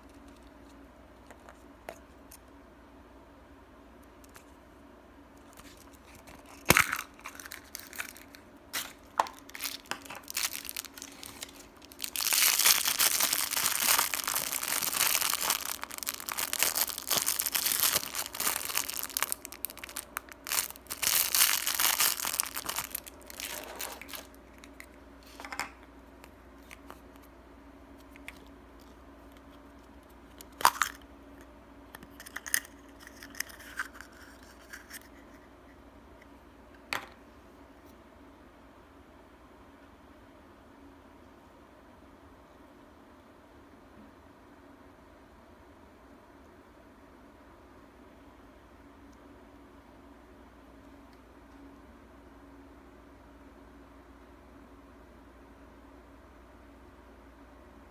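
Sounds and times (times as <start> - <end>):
candy wrapper crinkling and tearing: 5.4 - 25.4, 28.0 - 31.0, 32.0 - 35.3.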